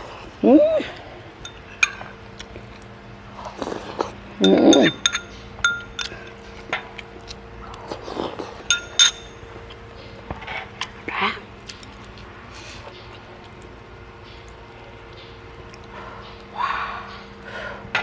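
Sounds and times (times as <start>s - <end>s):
metal spoon clinking on bowl: 1.4s - 2.1s, 4.4s - 6.4s, 8.6s - 9.4s.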